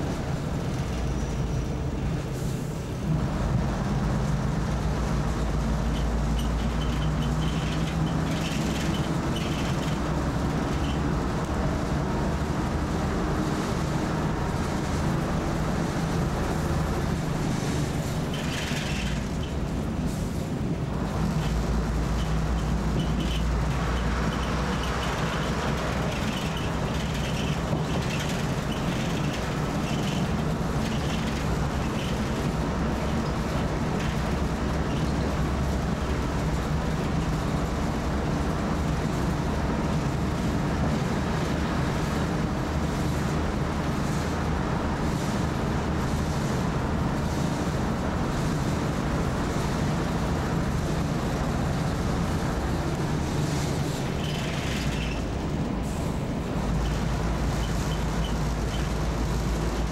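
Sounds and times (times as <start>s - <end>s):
train carriage interior drone: 0.0s - 59.9s
light rattles: 5.9s - 11.4s.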